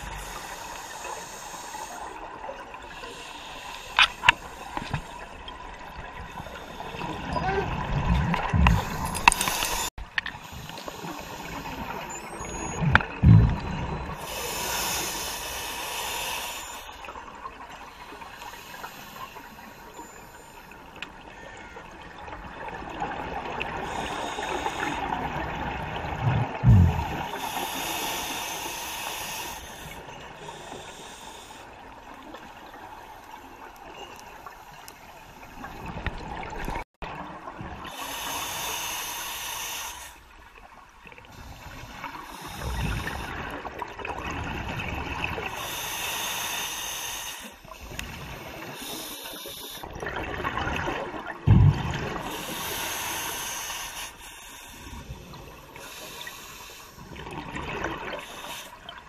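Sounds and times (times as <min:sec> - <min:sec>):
regulator hissing inhale: 0:00.0 - 0:02.2, 0:03.0 - 0:05.1, 0:08.6 - 0:12.2, 0:13.5 - 0:17.1, 0:17.9 - 0:20.8, 0:23.8 - 0:25.2, 0:26.5 - 0:31.9, 0:37.9 - 0:40.3, 0:41.3 - 0:43.5, 0:45.5 - 0:49.9, 0:52.3 - 0:57.2, 0:58.1 - 0:59.0
exhaled bubbles rushing: 0:07.1 - 0:09.9, 0:11.5 - 0:14.3, 0:25.6 - 0:27.4, 0:49.9 - 0:52.4.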